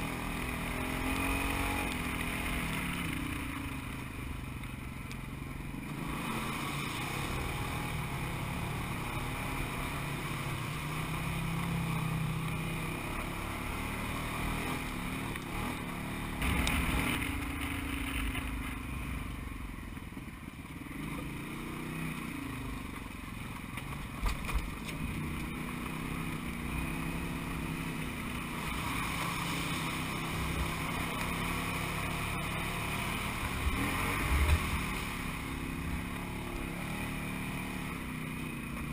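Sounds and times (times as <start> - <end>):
utility vehicle engine revving: 0.0 - 19.6, 23.8 - 38.9.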